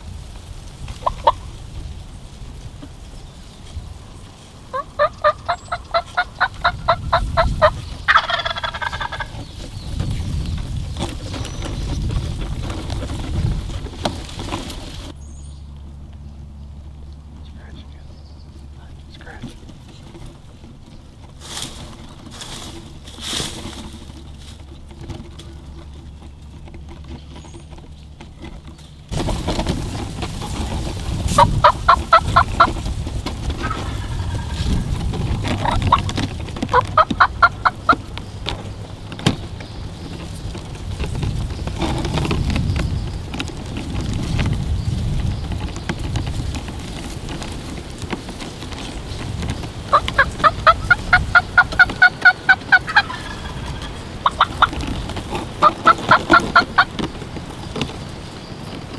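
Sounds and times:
steady rushing noise: 0:00.0 - 0:15.2, 0:29.0 - 0:58.9
turkey calling: 0:01.0 - 0:01.5, 0:02.7 - 0:09.9, 0:30.3 - 0:41.5, 0:46.0 - 0:58.4.

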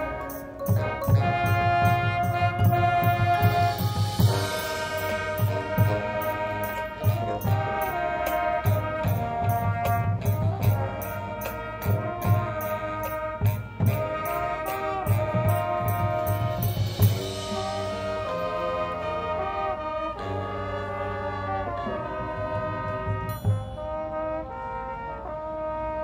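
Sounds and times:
steady percussion beat: 0:00.0 - 0:20.4, 0:21.9 - 0:24.2
marching band brass: 0:00.0 - 0:26.0
loud cymbal crash: 0:16.3 - 0:18.6.

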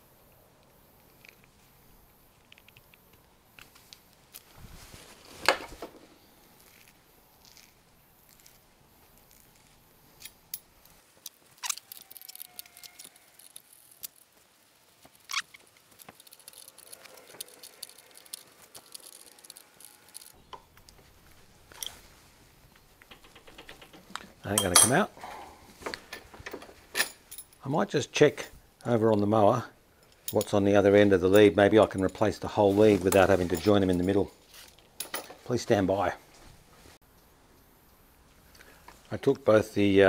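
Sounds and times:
metal parts being handled: 0:15.2 - 0:20.4, 0:22.7 - 0:25.1, 0:25.8 - 0:27.6, 0:31.3 - 0:35.6
hand tools clicking and knocking: 0:22.7 - 0:27.6.

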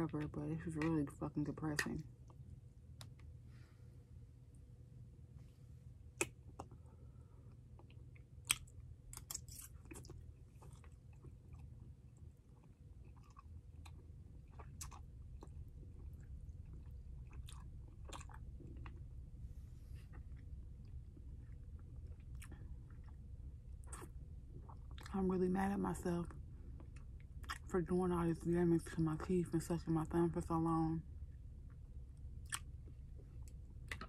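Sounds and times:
steady low hum: 0:00.0 - 0:34.0
wet clicks and crunches of chewing: 0:06.1 - 0:06.8, 0:07.5 - 0:19.1, 0:23.8 - 0:25.2, 0:26.7 - 0:27.7, 0:31.6 - 0:34.0.

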